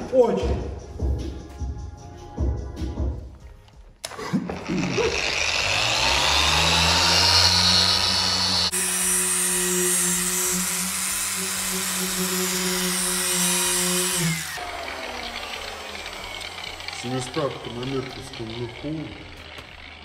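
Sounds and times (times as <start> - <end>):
machine polisher running: 4.0 - 20.0.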